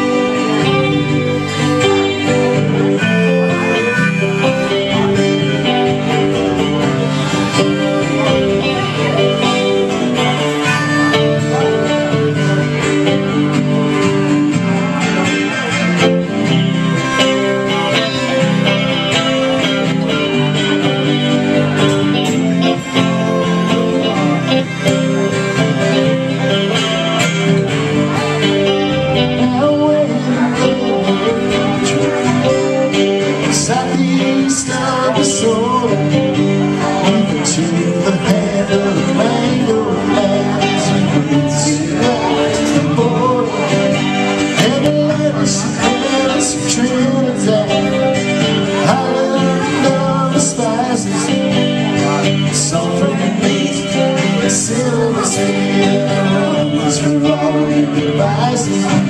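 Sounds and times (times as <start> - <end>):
acoustic guitar: 0.0 - 59.0
electric guitar: 0.0 - 59.0.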